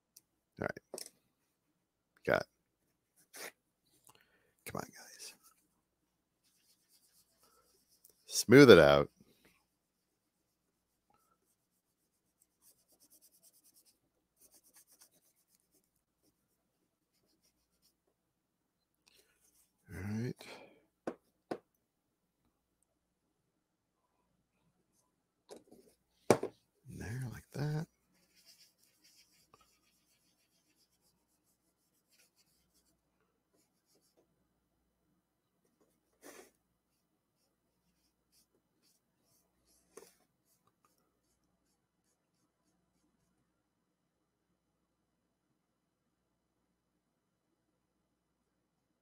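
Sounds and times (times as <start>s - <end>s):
fingertips rubbing paper: 27.5s - 32.9s.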